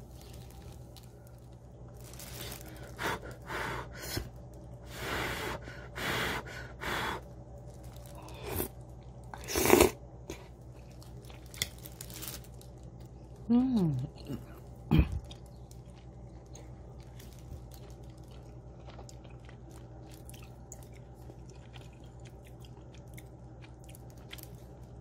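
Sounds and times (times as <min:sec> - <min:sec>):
person chewing: 0:07.6 - 0:12.1, 0:12.9 - 0:25.0.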